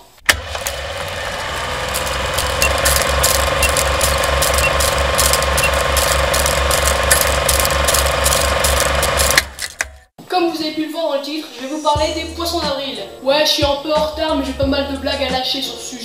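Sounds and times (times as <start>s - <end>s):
film projector clattering: 0.2s - 9.9s.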